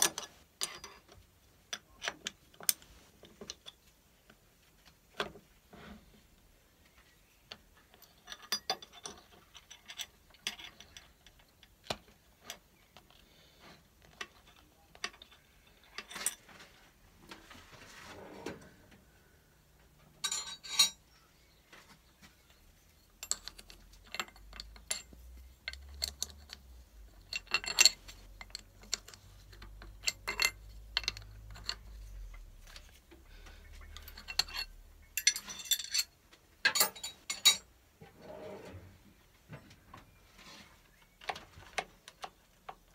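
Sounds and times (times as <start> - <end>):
metallic clinks of tools: 20.2 - 21.0, 33.9 - 36.1.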